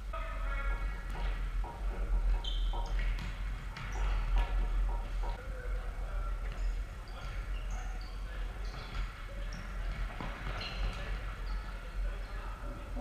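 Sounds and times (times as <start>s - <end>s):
shoes squeaking on wooden floor: 2.0s - 5.3s, 6.6s - 11.7s.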